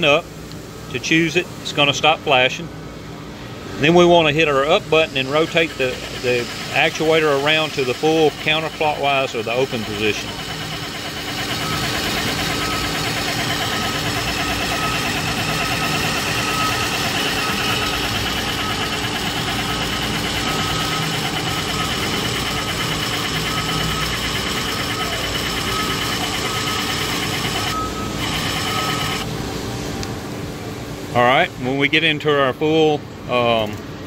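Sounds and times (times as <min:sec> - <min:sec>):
actuator motor and gears running: 0:04.0 - 0:30.1.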